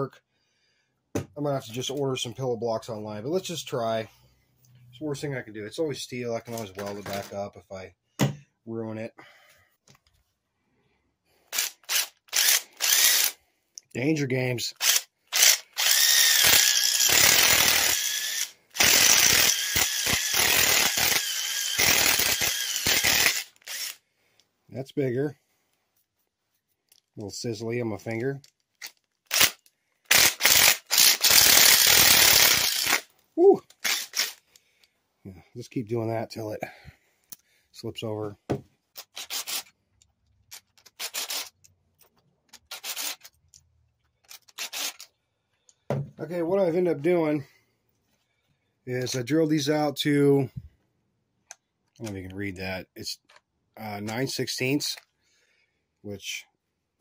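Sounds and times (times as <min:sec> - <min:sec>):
impact driver drilling steel: 0:11.5 - 0:13.4, 0:14.8 - 0:24.0, 0:29.3 - 0:33.1, 0:33.8 - 0:34.4, 0:39.0 - 0:39.7, 0:41.0 - 0:41.5, 0:42.7 - 0:43.3, 0:44.5 - 0:45.0.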